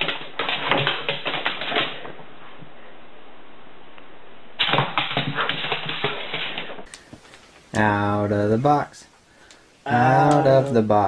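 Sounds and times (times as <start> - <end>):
steady hiss: 6.8 - 11.0.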